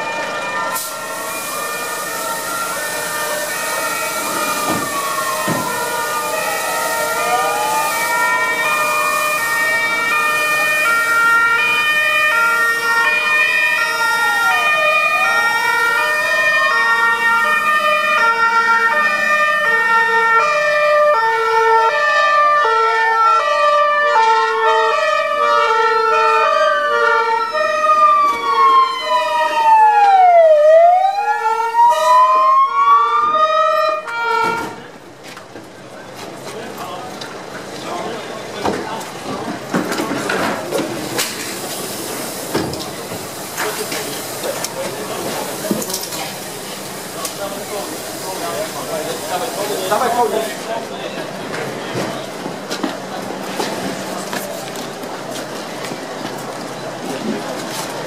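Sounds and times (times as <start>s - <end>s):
fire engine siren wailing: 0.0s - 35.1s, 35.8s - 58.0s
fast-switching stepped siren tone: 0.9s - 20.5s, 24.9s - 34.4s.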